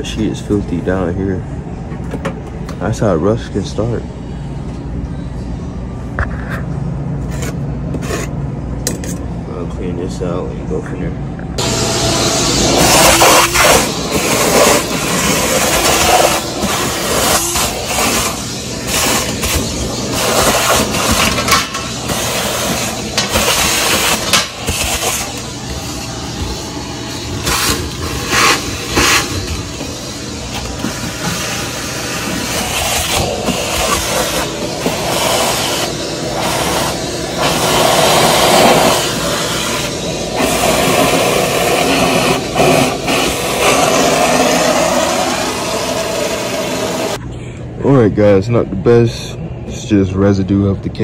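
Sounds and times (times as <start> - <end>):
shop vacuum sucking water: 11.6 - 47.2.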